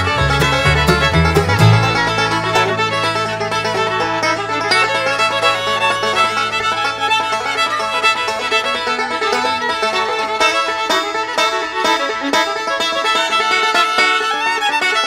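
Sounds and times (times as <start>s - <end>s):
bluegrass tune with fiddle and banjo: 0.0s - 15.0s.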